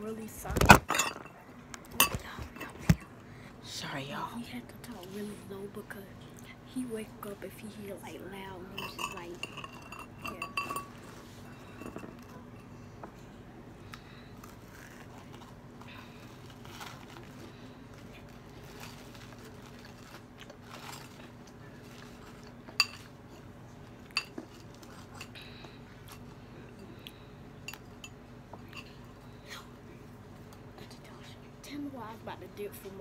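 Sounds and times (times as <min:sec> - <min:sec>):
steady low hum: 0:00.0 - 0:33.0
utensils clinking on dishes: 0:00.6 - 0:02.8, 0:08.6 - 0:12.8, 0:20.7 - 0:26.9.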